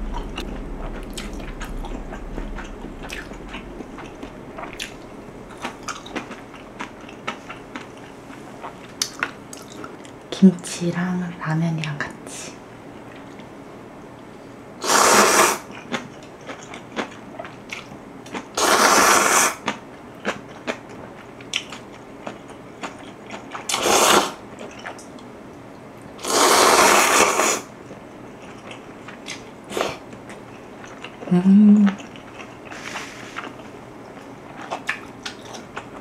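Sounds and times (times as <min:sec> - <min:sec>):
closed-mouth hum: 0:00.0 - 0:09.2
person slurping noodles: 0:14.8 - 0:15.6, 0:18.6 - 0:19.5, 0:23.7 - 0:24.4, 0:26.2 - 0:27.6.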